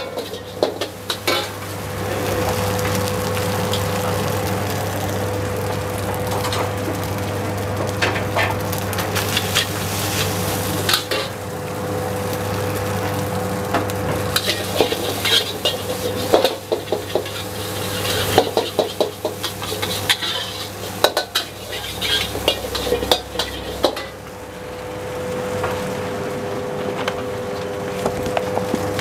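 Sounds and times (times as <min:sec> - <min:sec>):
metal spatula scraping a wok: 0:00.0 - 0:01.8, 0:09.2 - 0:11.3, 0:14.3 - 0:24.2
food sizzling in oil: 0:00.0 - 0:27.6
burner and hood hum: 0:00.0 - 0:29.0.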